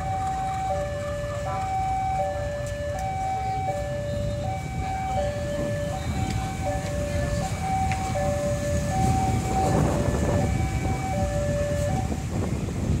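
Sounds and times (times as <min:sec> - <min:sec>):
two-tone crossing alarm: 0:00.0 - 0:12.8
diesel locomotive rumble: 0:00.0 - 0:13.0
road traffic: 0:00.0 - 0:13.0.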